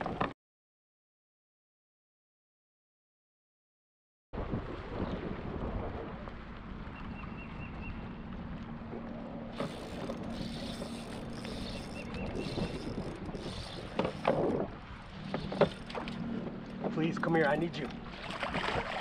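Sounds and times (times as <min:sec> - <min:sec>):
water splashing: 0:04.4 - 0:19.0
fishing reel cranking: 0:09.6 - 0:14.5.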